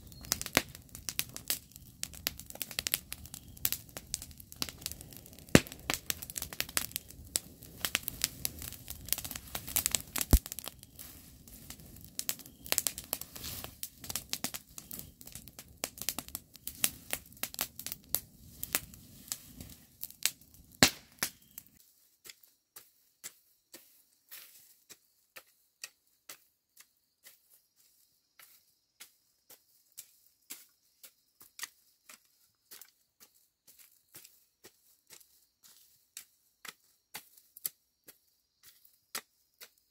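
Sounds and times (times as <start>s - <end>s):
dense crackling clicks: 0.2s - 18.9s.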